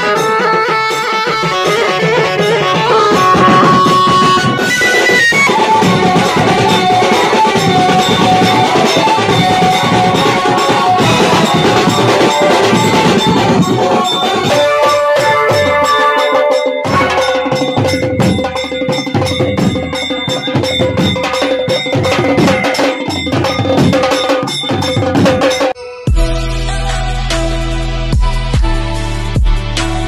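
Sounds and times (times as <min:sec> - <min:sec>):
drummers playing fast rhythm: 0:00.0 - 0:26.4.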